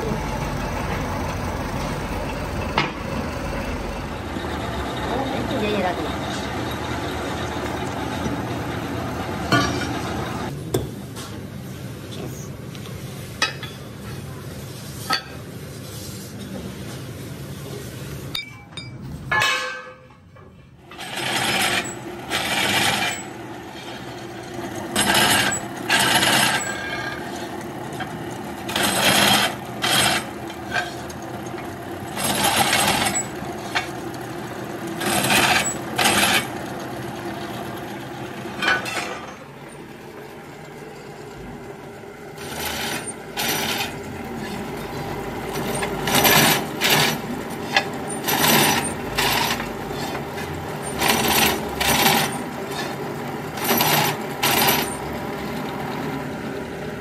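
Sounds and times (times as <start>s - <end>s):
drill press motor hum: 0.0s - 10.6s, 20.8s - 57.0s
drill bit cutting steel: 20.9s - 24.2s, 24.9s - 27.2s, 28.6s - 31.0s, 32.1s - 33.4s, 35.0s - 36.6s.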